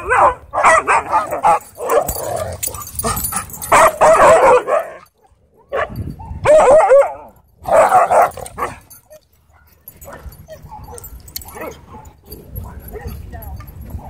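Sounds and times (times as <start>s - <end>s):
dogs barking and yipping: 0.0s - 14.0s
dog yelps: 3.4s - 12.2s.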